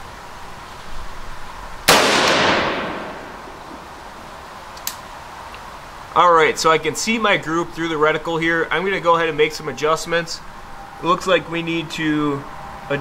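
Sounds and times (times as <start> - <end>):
rifle shot echoing: 1.9 - 4.0.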